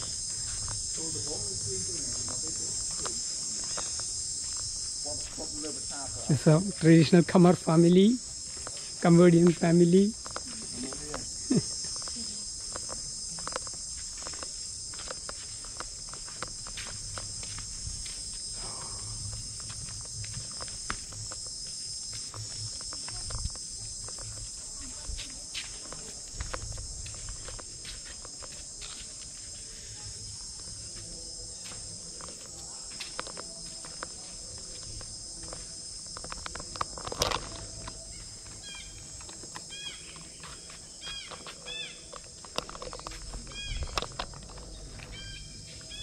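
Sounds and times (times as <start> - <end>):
insects droning: 0.0 - 46.0
bird calling: 43.4 - 44.2, 45.1 - 46.0.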